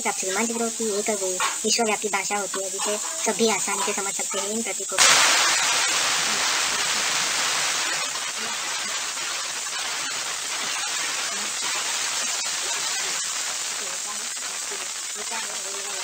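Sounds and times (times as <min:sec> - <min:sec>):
steady static hiss: 0:00.0 - 0:16.0.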